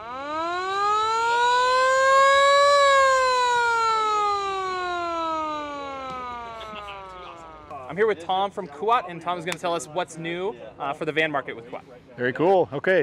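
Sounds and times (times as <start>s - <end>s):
fire truck siren wailing: 0.0s - 8.0s.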